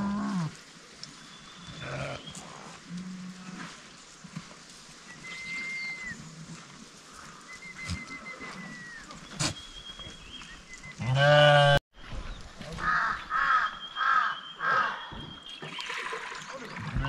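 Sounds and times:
livestock calling: 0:07.1 - 0:10.2.

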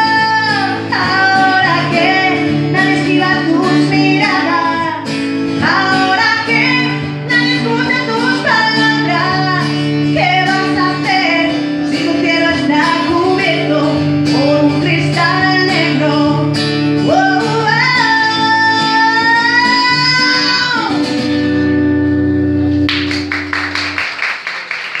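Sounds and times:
woman singing: 0:00.0 - 0:21.2
acoustic guitar: 0:00.0 - 0:24.3
audience applause: 0:22.9 - 0:25.0.

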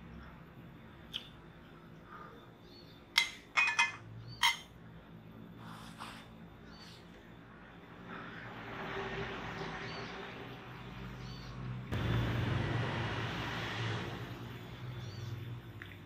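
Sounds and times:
motor engine humming: 0:11.8 - 0:15.8.

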